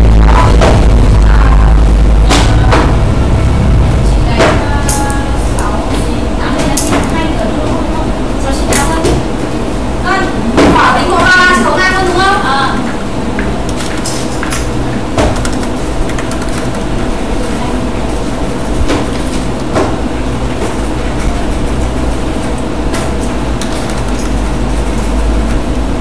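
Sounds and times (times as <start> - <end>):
low rumble: 0.0 - 8.5
mechanical hum: 0.0 - 26.0.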